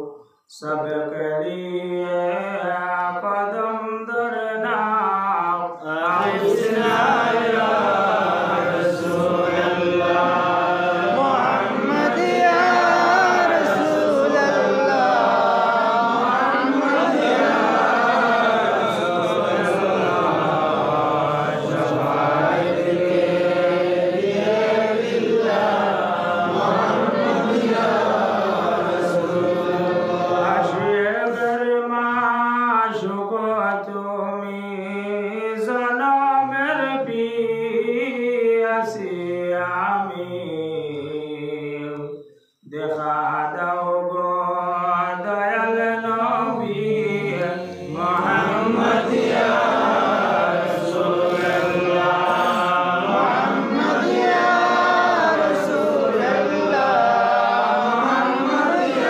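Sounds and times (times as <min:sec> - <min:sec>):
voices chanting slow melody: 0:05.7 - 0:31.5, 0:39.0 - 0:59.0.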